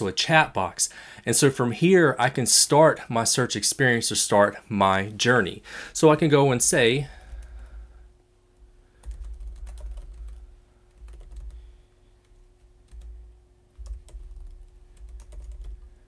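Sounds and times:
computer keyboard typing: 0:07.2 - 0:07.8, 0:09.0 - 0:16.0.

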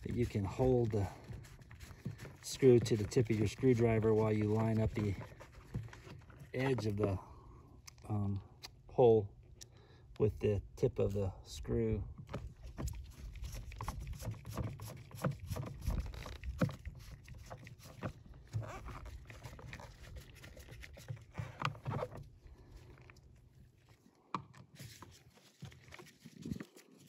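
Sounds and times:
clicks and scrapes on plastic: 0:00.0 - 0:07.0, 0:12.2 - 0:23.2.

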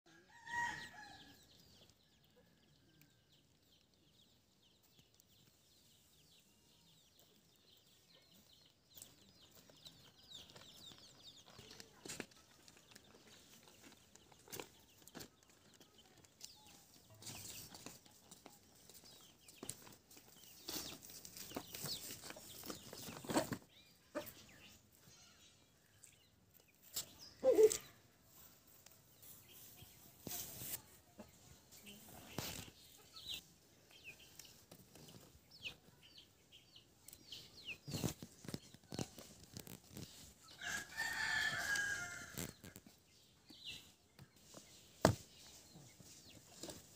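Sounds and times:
chickens clucking: 0:07.1 - 0:40.6
rustles and clicks: 0:37.8 - 0:43.0.

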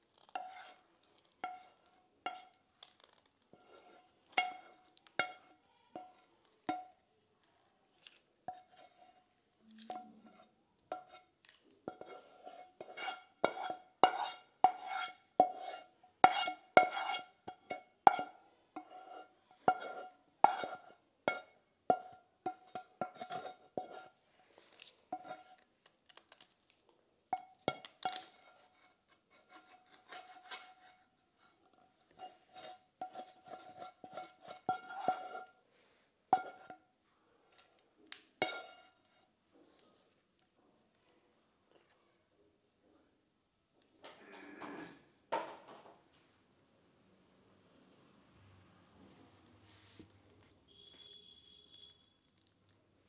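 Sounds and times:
spatula scraping frying pan: 0:00.0 - 0:07.0, 0:08.5 - 0:25.6, 0:27.3 - 0:36.9, 0:38.4 - 0:39.4.

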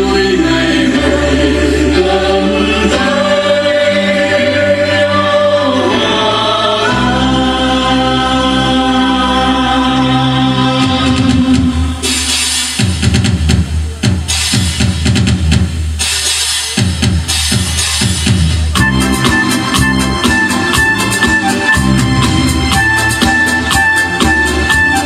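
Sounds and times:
mixed choir singing: 0:00.0 - 0:12.5
instrumental accompaniment: 0:00.0 - 0:25.0.

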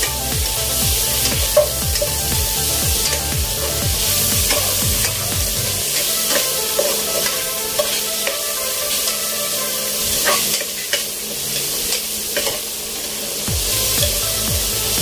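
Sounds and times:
vegetables sizzling in a pot: 0:00.0 - 0:15.0
metal ladle scraping a pot: 0:01.2 - 0:13.2.

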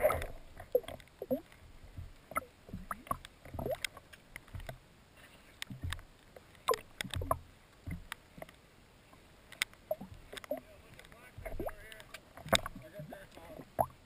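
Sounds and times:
dull low thumps: 0:00.0 - 0:03.8, 0:05.7 - 0:06.1, 0:06.7 - 0:08.2, 0:11.3 - 0:11.8
underwater clicks: 0:00.0 - 0:04.8, 0:05.6 - 0:14.0.

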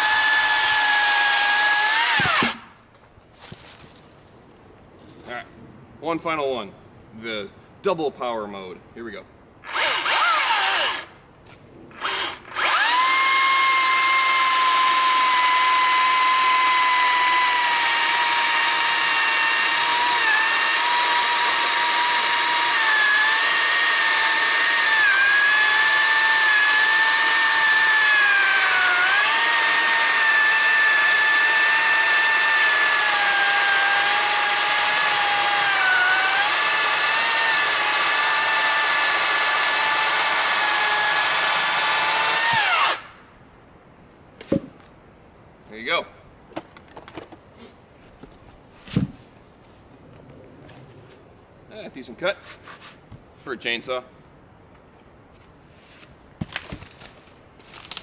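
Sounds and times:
electric chainsaw cutting log: 0:00.0 - 0:02.7, 0:09.7 - 0:11.1, 0:12.0 - 0:43.1.

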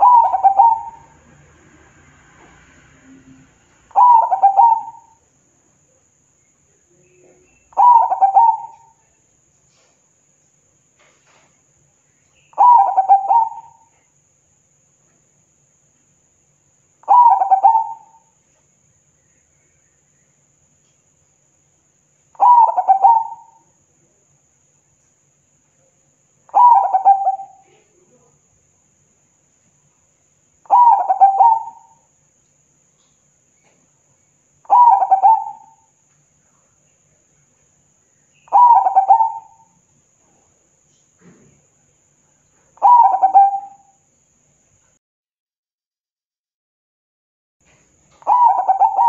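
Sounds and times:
dove cooing: 0:00.0 - 0:01.2, 0:03.9 - 0:05.2, 0:07.3 - 0:09.0, 0:12.6 - 0:14.0, 0:17.1 - 0:18.3, 0:22.4 - 0:23.7, 0:26.5 - 0:28.0, 0:30.7 - 0:32.0, 0:34.7 - 0:35.9, 0:38.5 - 0:39.7, 0:42.8 - 0:43.9, 0:48.2 - 0:49.0.

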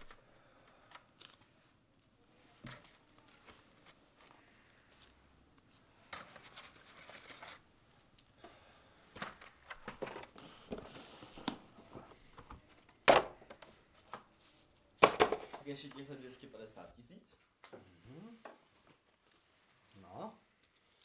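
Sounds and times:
paper rustling and crinkling: 0:00.0 - 0:07.7.

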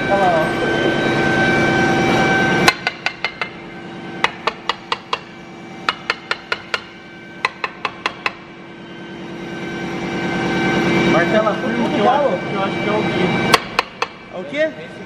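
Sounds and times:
hammer tapping on metal: 0:02.7 - 0:03.6, 0:04.2 - 0:08.4, 0:13.5 - 0:14.2.

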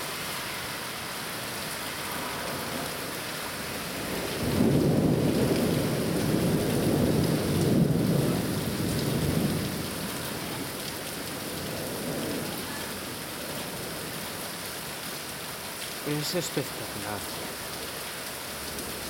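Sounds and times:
rain falling: 0:00.0 - 0:19.0
thunder rumbling: 0:03.8 - 0:14.1.

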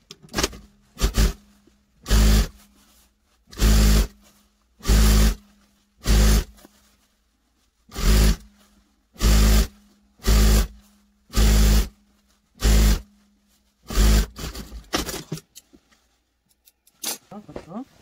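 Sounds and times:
fabric rustling: 0:00.5 - 0:18.0
sewing machine stitching: 0:02.0 - 0:02.5, 0:03.6 - 0:04.1, 0:04.8 - 0:05.4, 0:07.9 - 0:08.4, 0:09.2 - 0:10.7, 0:11.3 - 0:11.9, 0:12.6 - 0:13.0, 0:13.9 - 0:15.1.

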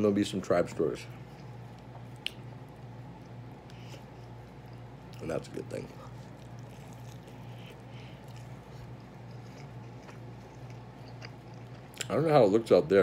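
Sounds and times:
steady low hum: 0:00.0 - 0:13.0
person chewing: 0:01.2 - 0:05.3, 0:06.0 - 0:12.2.

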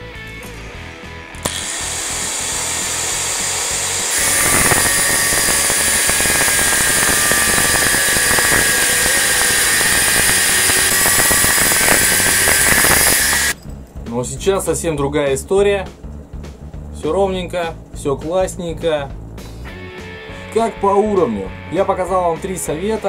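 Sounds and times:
angle grinder cutting steel pipe: 0:01.4 - 0:13.6
angle grinder spinning free: 0:01.4 - 0:13.6.

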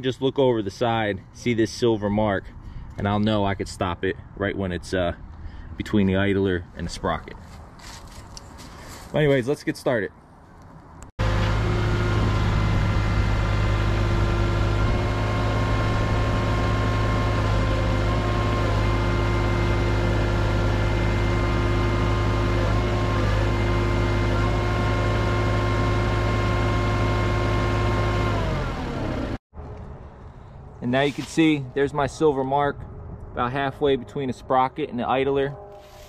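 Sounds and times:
diesel engine running: 0:11.2 - 0:30.8.

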